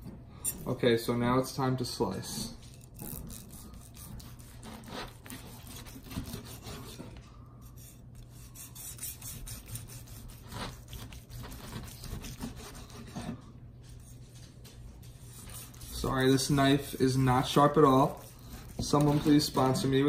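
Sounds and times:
knife sawing on cutting board: 3.1 - 13.4, 15.2 - 20.0.

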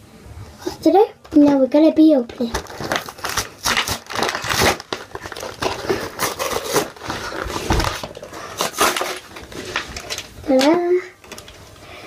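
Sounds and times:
packaging crinkling: 2.4 - 11.7.

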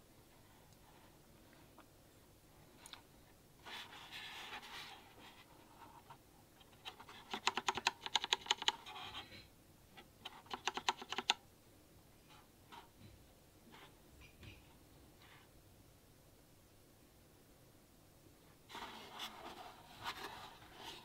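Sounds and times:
controller buttons clicking: 7.3 - 8.8, 10.4 - 11.4
scratchy handling rustle: 18.7 - 21.0.

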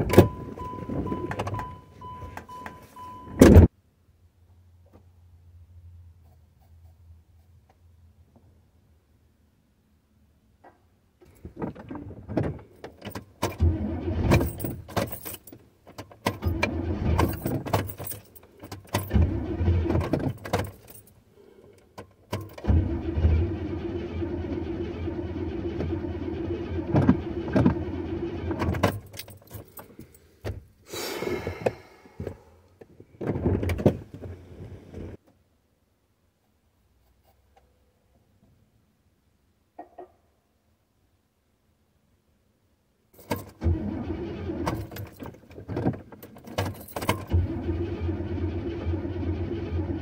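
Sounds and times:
starter cranking car engine: 13.5 - 14.9, 16.4 - 17.6, 19.0 - 20.4, 22.5 - 29.0, 43.4 - 50.0.

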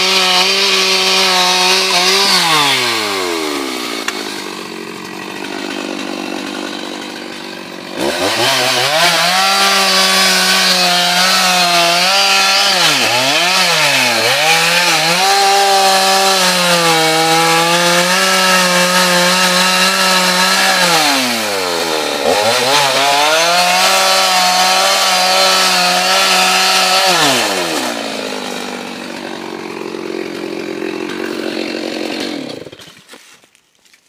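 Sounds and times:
chainsaw cutting wood: 0.0 - 34.0.

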